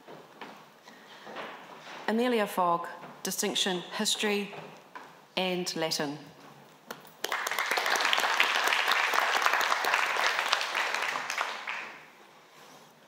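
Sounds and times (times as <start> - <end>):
audience applauding: 7.2 - 12.2.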